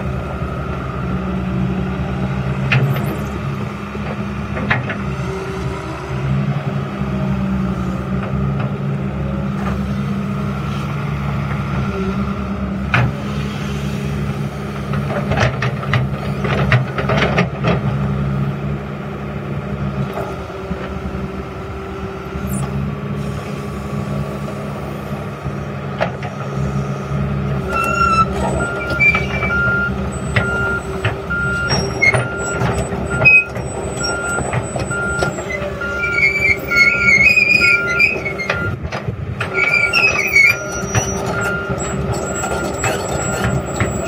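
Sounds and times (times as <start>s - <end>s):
excavator diesel engine running: 0.0s - 44.0s
hydraulics working: 20.1s - 44.0s.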